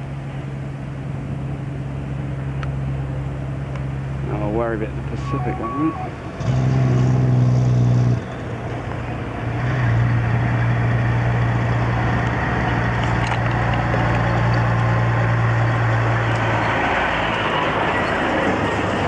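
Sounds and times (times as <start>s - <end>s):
tyre and road noise: 0.0s - 19.0s
diesel truck engine pulling: 4.0s - 19.0s.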